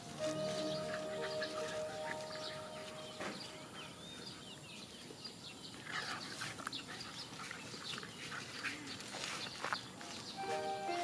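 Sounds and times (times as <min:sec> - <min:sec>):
dogs yelping and snarling: 0:00.7 - 0:02.9.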